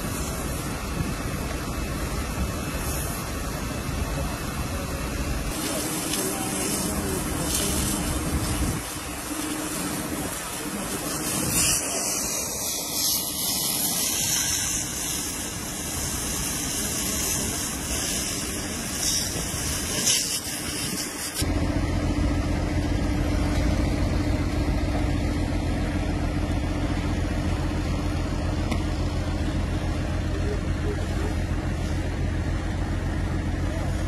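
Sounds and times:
hiss of fire hose water jet: 0.0 - 21.5
fire engine rumbling: 0.0 - 34.0.

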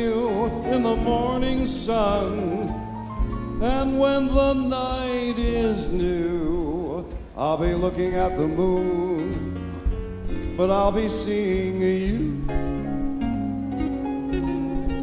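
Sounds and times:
singer holding long notes: 11.6 - 15.0
live dance band playing: 12.5 - 15.0.

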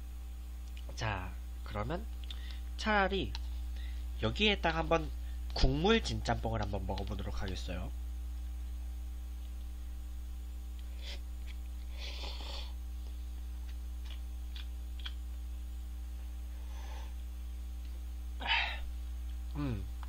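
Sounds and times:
low electrical hum: 0.0 - 20.0
chewing clicks: 2.1 - 2.6, 13.6 - 15.4.

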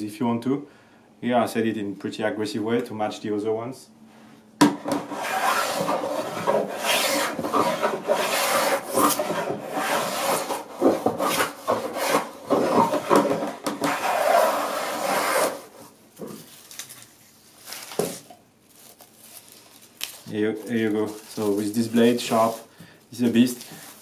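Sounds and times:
hand plane cutting wood: 4.7 - 15.9.

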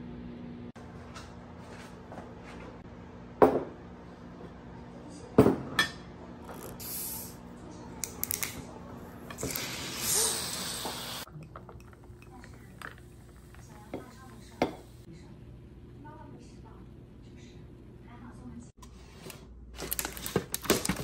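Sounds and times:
bottle opening fizzing hiss: 9.4 - 11.3.

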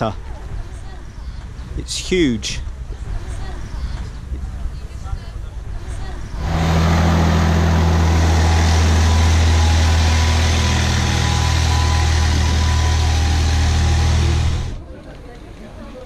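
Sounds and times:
tractor diesel engine running: 6.4 - 14.8.

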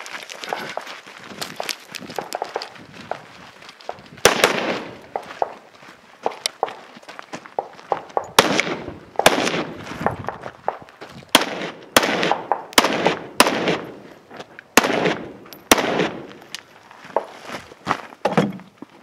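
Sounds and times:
rifle shots with echo: 4.2 - 5.5, 7.6 - 14.0, 14.8 - 16.4.

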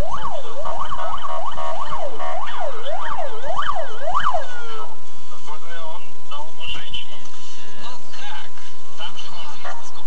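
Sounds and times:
emergency siren yelping: 0.0 - 4.9.

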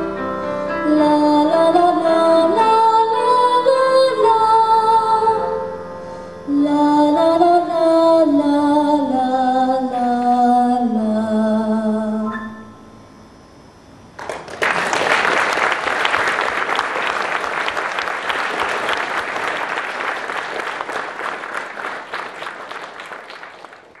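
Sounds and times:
audience applauding: 14.2 - 24.0.

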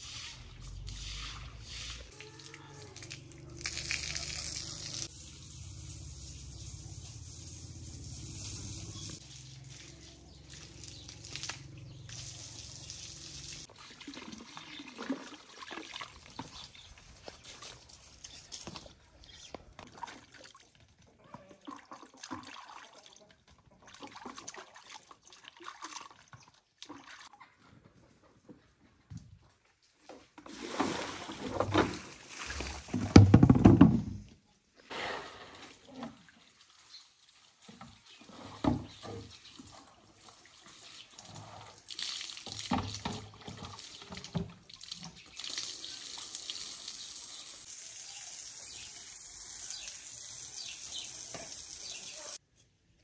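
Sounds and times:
water running: 0.3 - 18.8, 35.9 - 52.4
water splashing in plastic basin: 0.8 - 5.1, 9.0 - 27.3, 30.4 - 34.1, 35.2 - 47.0.

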